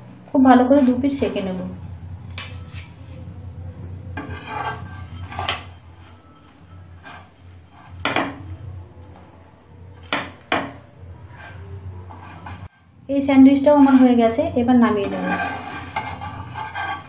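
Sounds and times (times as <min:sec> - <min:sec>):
steady low hum: 0:00.0 - 0:17.0
spatula scraping frying pan: 0:00.7 - 0:03.4, 0:04.1 - 0:17.0.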